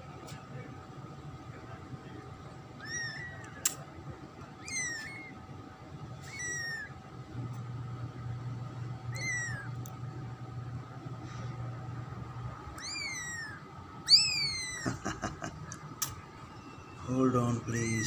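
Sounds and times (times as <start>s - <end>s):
kitten mewing: 2.8s - 3.8s, 4.6s - 5.4s, 6.2s - 7.0s, 9.1s - 9.9s, 12.7s - 16.2s, 17.7s - 18.0s
sharp click: 3.4s - 3.8s.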